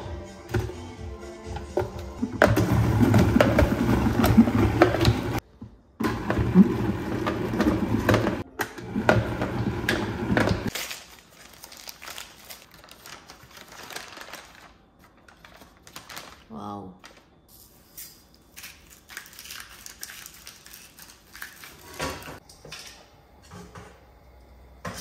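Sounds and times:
paper crinkling: 10.7 - 17.3.

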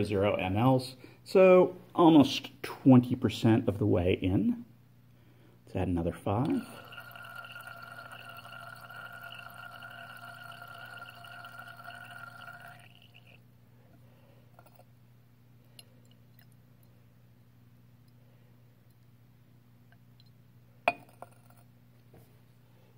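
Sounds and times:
faint steady hum: 0.0 - 22.9
liquid running into glass flask: 6.4 - 13.4.

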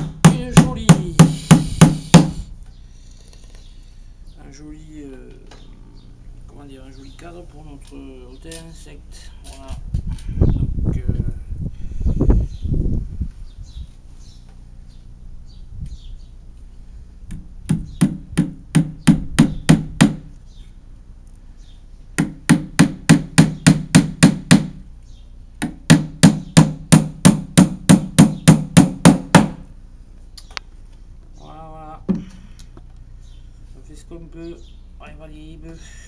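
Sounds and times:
hammer striking nails into wood: 0.0 - 2.4, 17.3 - 20.3, 22.2 - 24.8, 25.6 - 29.6.

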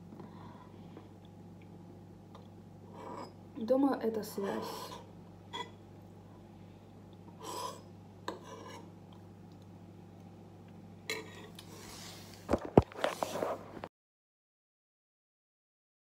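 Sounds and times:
metal spoon scraping ceramic bowl: 2.9 - 3.4, 7.4 - 8.9.

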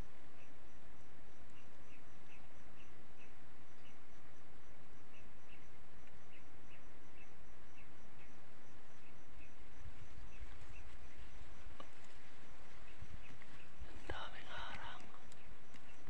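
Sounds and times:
low rustling: 9.6 - 16.0.

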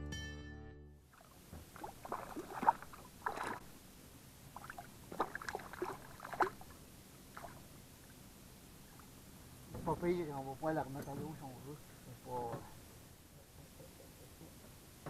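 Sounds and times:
fish thrashing and splashing in water: 1.1 - 3.8, 4.5 - 6.7, 7.3 - 7.7.

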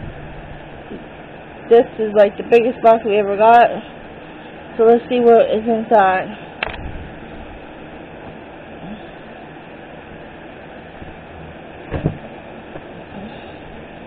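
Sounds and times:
brief thump: 11.9 - 12.3.

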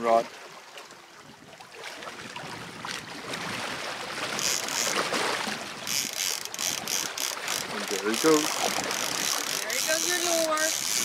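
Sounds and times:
water rushing past boat hull: 0.0 - 11.0
fishing reel clicker ratcheting: 4.4 - 5.0, 5.8 - 11.0.

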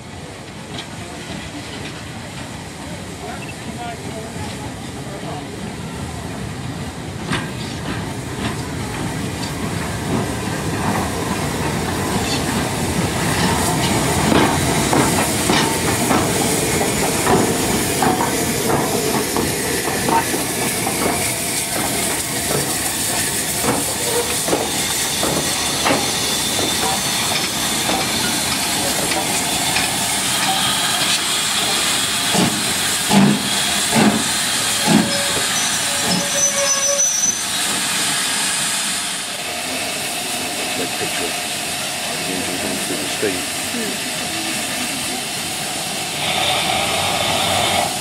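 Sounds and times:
steam hissing: 6.7 - 48.0
train wheels clanking over rail joints: 7.2 - 36.9.

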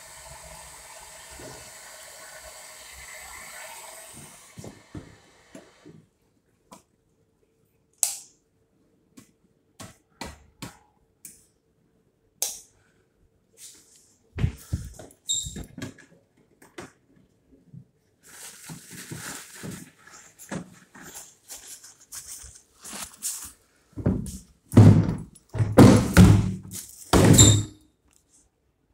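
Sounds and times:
person moving about: 13.5 - 16.8, 17.8 - 24.6.

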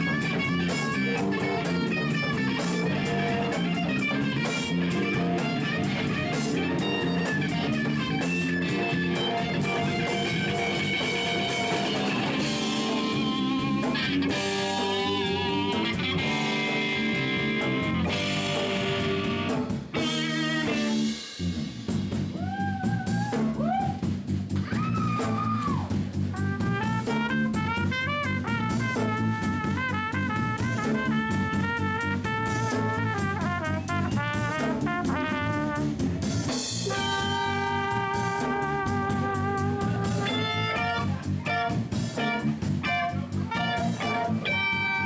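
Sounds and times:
trumpet: 0.0 - 13.2, 26.2 - 45.0
bass guitar: 0.0 - 45.0
drums: 0.0 - 45.0
electric guitar: 0.0 - 45.0.

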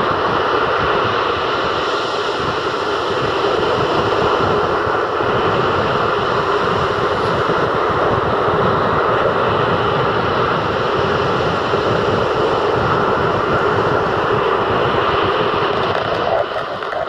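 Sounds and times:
wind gusting on microphone: 0.0 - 17.0
surf breaking on shore: 11.3 - 17.0.

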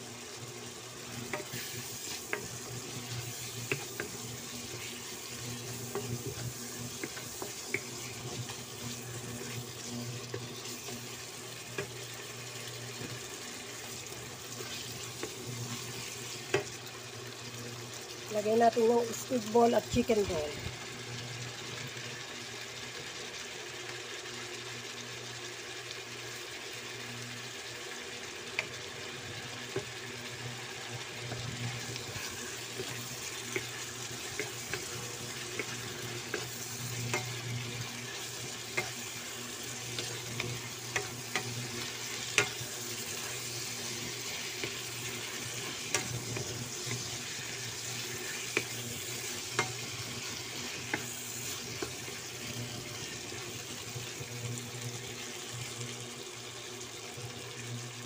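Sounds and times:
chicken sizzling in a wok: 0.0 - 58.0
wooden spatula scraping a pan: 1.1 - 12.1, 31.3 - 52.3.

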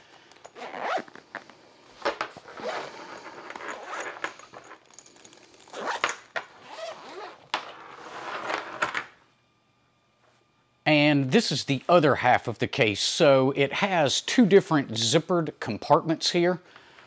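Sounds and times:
zipper rasping: 0.5 - 1.5, 2.4 - 8.7.

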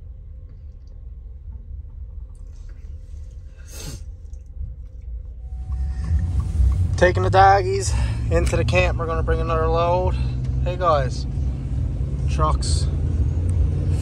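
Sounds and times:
ferry low rumble: 0.0 - 14.0
truck cab noise: 0.0 - 14.0.

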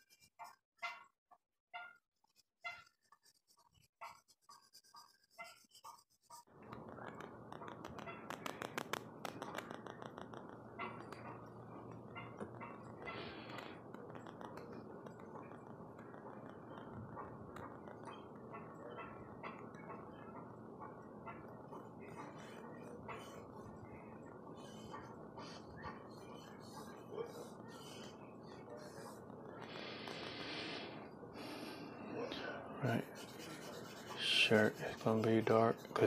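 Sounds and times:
charcoal scratching on paper: 0.0 - 1.1, 2.2 - 11.5, 21.8 - 29.3, 32.8 - 36.0
sharp charcoal ticks: 7.0 - 17.0.

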